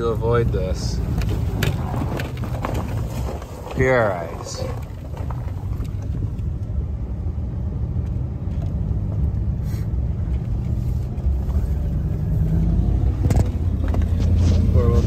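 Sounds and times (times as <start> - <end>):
truck engine rumble: 0.0 - 15.0
tyres on gravel road: 0.0 - 15.0.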